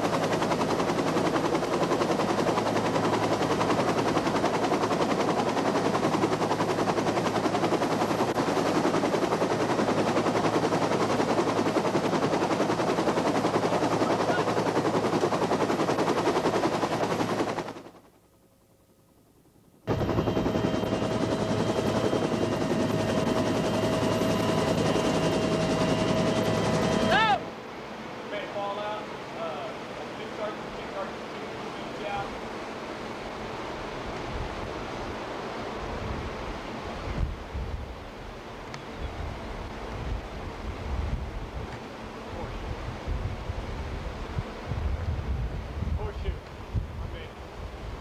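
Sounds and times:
helicopter rotor and engine noise: 0:00.0 - 0:48.0
steady whine: 0:19.4 - 0:35.1.

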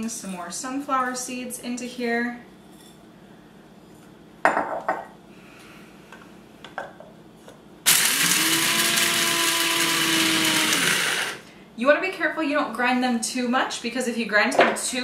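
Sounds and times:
electric coffee grinder grinding: 0:07.9 - 0:11.5.

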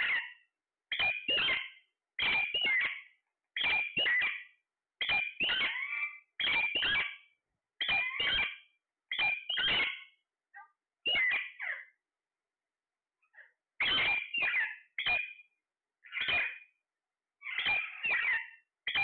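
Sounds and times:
parakeet harsh calls: 0:00.0 - 0:00.3, 0:00.9 - 0:03.0, 0:03.6 - 0:04.4, 0:05.0 - 0:07.2, 0:07.8 - 0:10.0, 0:11.1 - 0:11.8, 0:13.8 - 0:15.2, 0:16.1 - 0:16.6, 0:17.4 - 0:19.0.

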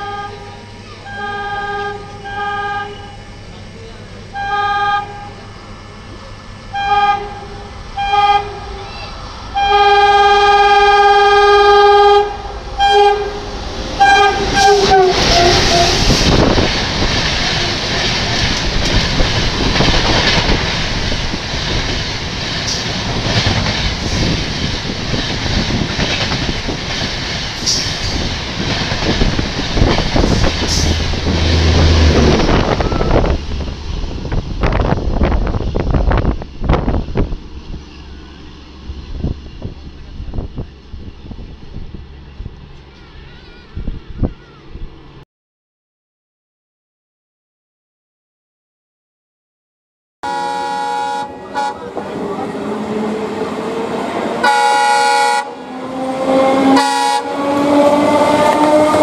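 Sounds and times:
locomotive horn blasts: 0:00.0 - 0:03.4, 0:04.3 - 0:05.6, 0:06.7 - 0:08.8, 0:09.5 - 0:16.2, 0:50.2 - 0:52.0, 0:54.4 - 0:59.0
train rushing past: 0:00.0 - 0:45.2, 0:50.2 - 0:59.0
wheels clattering over rails: 0:12.6 - 0:35.4.

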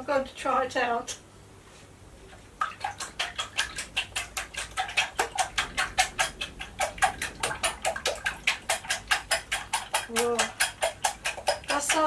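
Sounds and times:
whisk beating eggs in glass bowl: 0:02.8 - 0:12.0.

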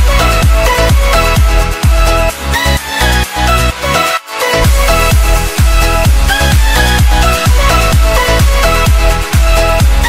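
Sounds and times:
kick drum: 0:00.0 - 0:02.3, 0:04.6 - 0:10.0
synth melody: 0:03.5 - 0:10.0.

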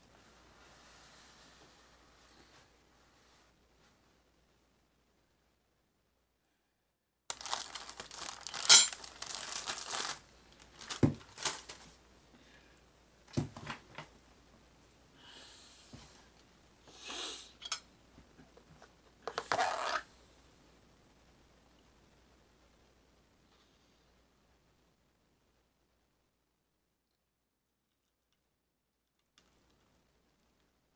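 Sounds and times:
paper wrapping tearing and crinkling: 0:07.3 - 0:12.0
plastic lid crinkling: 0:07.3 - 0:12.0, 0:19.2 - 0:20.1.

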